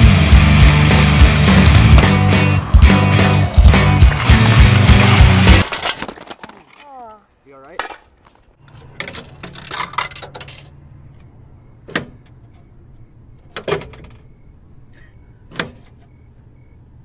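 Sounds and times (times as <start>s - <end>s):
camera handling rattle and rustle: 4.4s - 7.1s.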